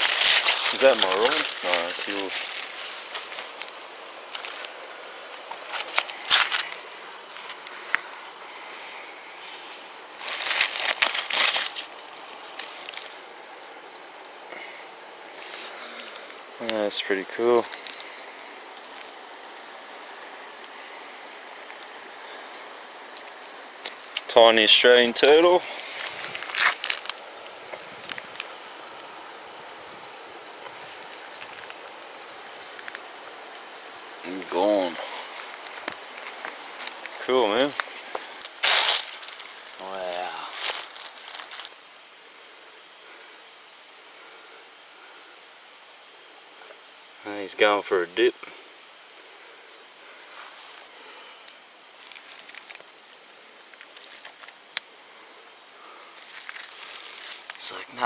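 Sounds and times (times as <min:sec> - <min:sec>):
rustling and scuffing: 0:00.0 - 0:13.4, 0:15.2 - 0:16.5, 0:25.0 - 0:29.1, 0:34.8 - 0:41.8, 0:50.2 - 0:51.2, 0:51.9 - 0:57.7
night insects chirring: 0:00.0 - 0:58.0.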